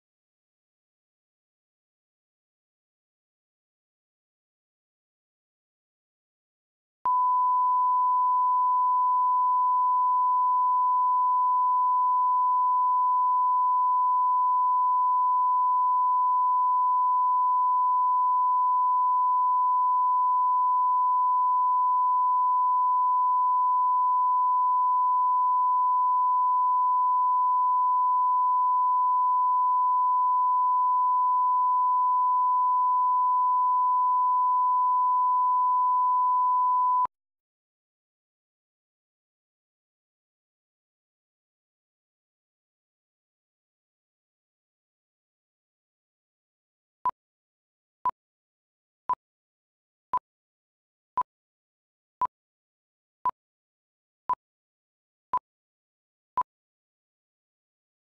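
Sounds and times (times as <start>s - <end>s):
pure reference tone: 7.1s - 37.1s.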